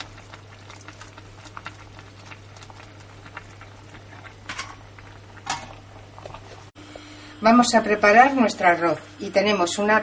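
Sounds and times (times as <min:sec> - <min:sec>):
stock bubbling in a pot: 0:00.0 - 0:06.8
steady low hum: 0:00.0 - 0:10.0.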